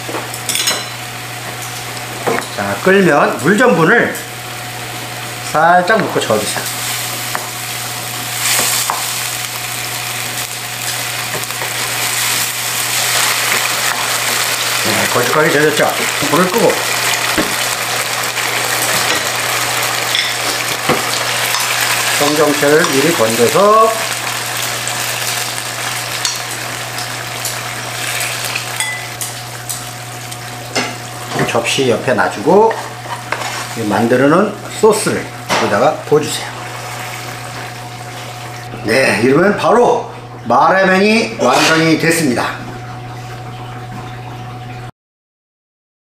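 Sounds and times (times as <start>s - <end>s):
sauce simmering and sizzling: 6.6s - 31.3s, 36.2s - 38.7s.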